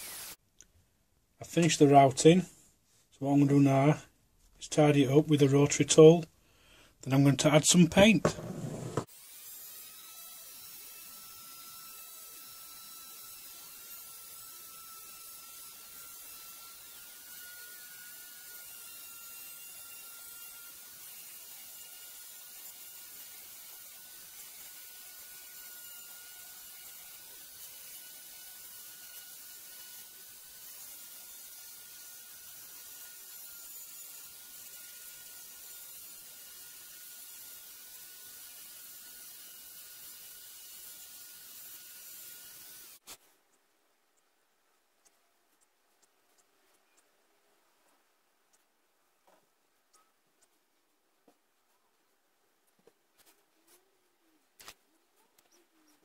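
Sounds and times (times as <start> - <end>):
rotary tool high whine: 0.0 - 0.4, 7.9 - 43.1.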